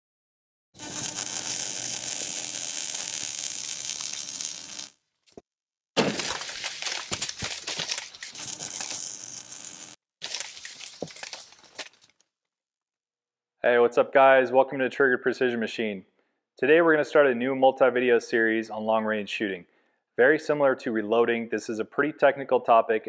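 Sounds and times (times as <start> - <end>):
debris crackling and clattering: 6.0 - 9.3, 10.2 - 12.2.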